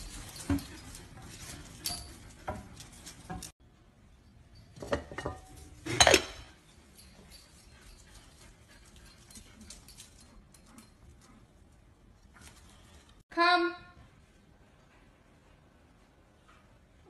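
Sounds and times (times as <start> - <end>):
ceramic jar clinking and clattering: 4.6 - 7.4.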